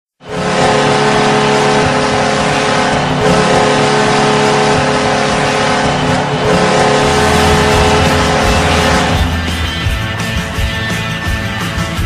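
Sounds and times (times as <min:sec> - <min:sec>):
goal horn blasting: 0:00.2 - 0:09.5
loud rushing noise: 0:00.2 - 0:10.7
music with heavy bass: 0:01.8 - 0:12.0.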